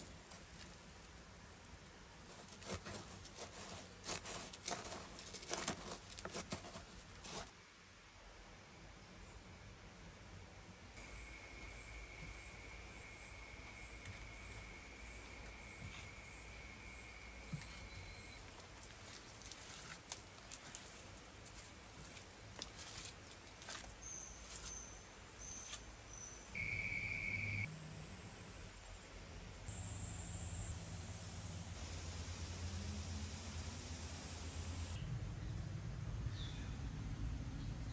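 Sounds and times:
insects trilling: 11.0s - 23.8s, 26.6s - 28.7s, 29.7s - 30.8s.

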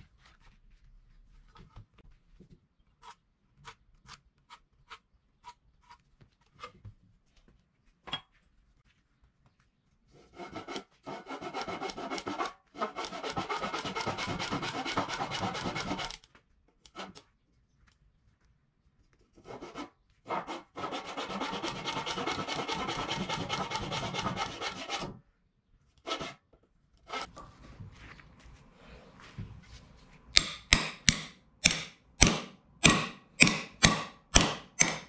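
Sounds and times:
handsaw cutting wood: 10.3s - 16.2s, 19.4s - 25.2s, 26.1s - 26.4s.

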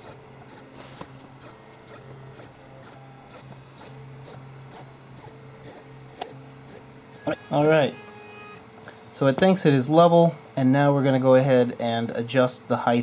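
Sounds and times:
stepper motors humming: 0.0s - 13.0s.

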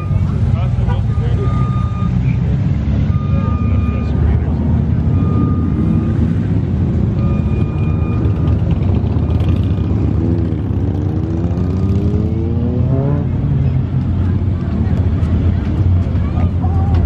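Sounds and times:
vehicle engine rumbling: 0.0s - 17.0s
engine revving: 1.4s - 16.1s.

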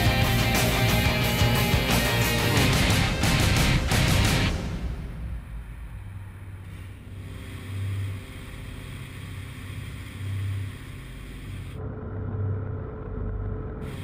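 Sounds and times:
propeller plane engine droning: 0.0s - 14.0s.

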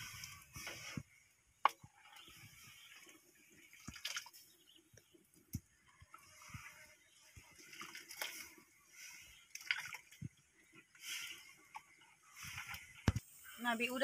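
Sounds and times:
ladle scraping and liquid sloshing: 5.9s - 13.0s.

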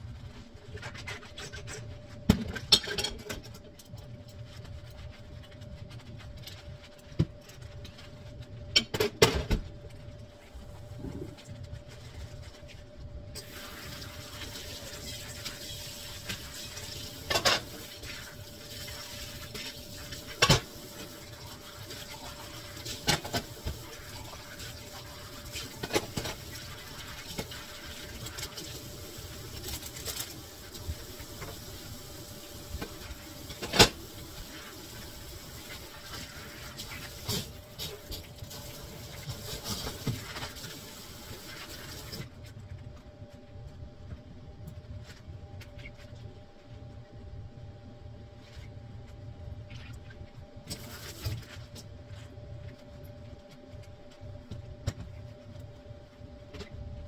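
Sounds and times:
water running from a tap: 13.4s - 42.2s.

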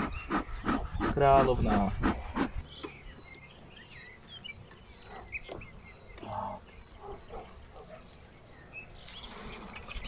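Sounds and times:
faint bird chirps: 2.2s - 10.0s.

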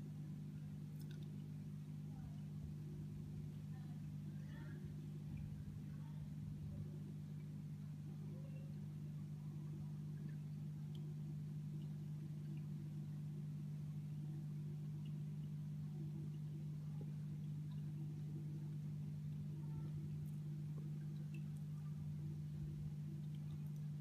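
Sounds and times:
steady low hum: 0.0s - 24.0s
faint ticks: 0.9s - 1.5s.

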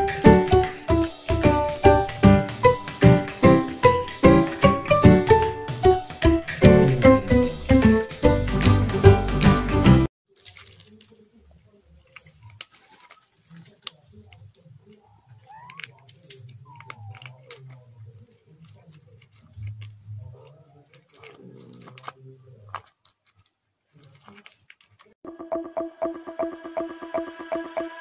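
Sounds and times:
small clicks and rustles: 10.3s - 25.2s.

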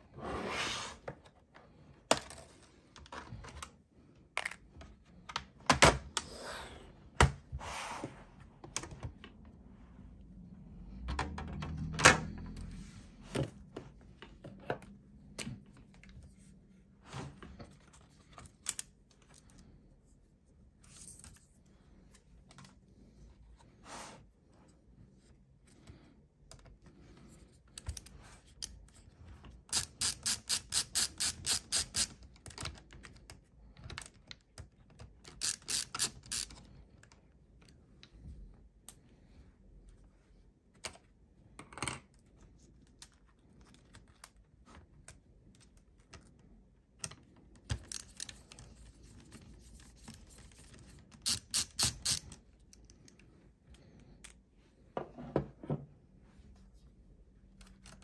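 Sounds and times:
screwdriver ratchet clicking: 29.7s - 32.2s, 35.3s - 36.6s, 51.2s - 52.3s.

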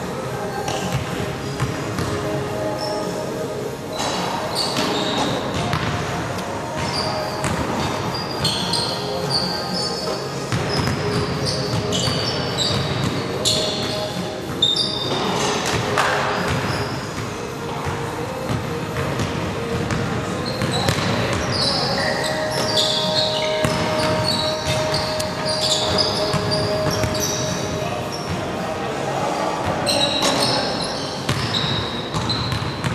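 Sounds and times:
players' voices: 0.0s - 32.9s
sneaker squeaks on floor: 0.5s - 3.3s, 3.9s - 6.0s, 6.6s - 18.3s, 18.9s - 28.4s, 29.6s - 32.9s
basketball bouncing: 20.6s - 21.5s.

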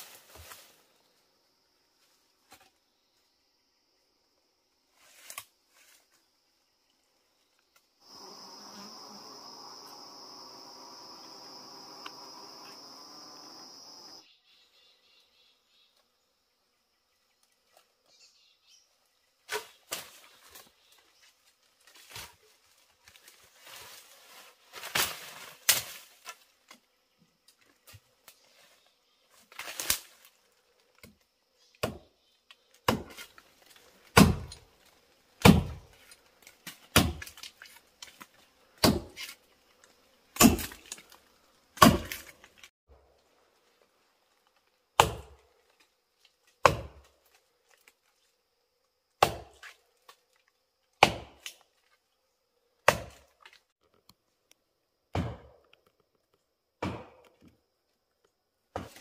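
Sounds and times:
rustling: 19.6s - 26.8s
machete chopping tree trunk: 31.8s - 32.1s, 32.8s - 33.3s, 34.1s - 34.6s, 35.4s - 36.0s, 36.6s - 37.5s, 38.8s - 39.4s, 40.4s - 41.1s, 41.8s - 42.4s, 45.0s - 45.4s, 46.6s - 47.2s, 49.2s - 49.8s, 51.0s - 51.6s, 52.8s - 53.3s, 55.1s - 55.7s, 56.8s - 57.4s.

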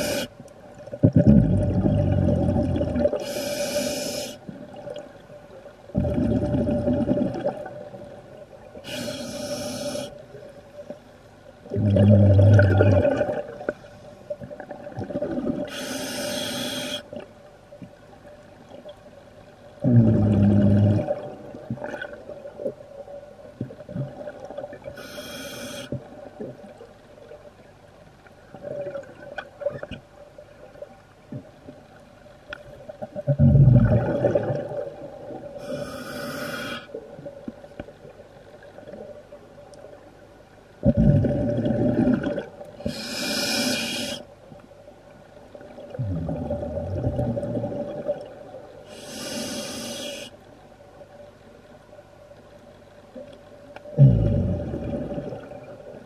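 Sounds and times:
scuba regulator inhale hiss: 0.0s - 0.3s, 3.2s - 4.4s, 8.8s - 10.2s, 15.7s - 17.1s, 25.0s - 26.0s, 35.6s - 37.0s, 42.8s - 44.3s, 48.9s - 50.4s
faint steady hum: 0.0s - 56.0s
exhaled bubbles burbling: 1.0s - 3.2s, 5.9s - 7.9s, 11.7s - 13.7s, 19.8s - 22.2s, 33.0s - 35.6s, 40.8s - 42.6s, 45.8s - 48.5s, 54.0s - 56.0s.

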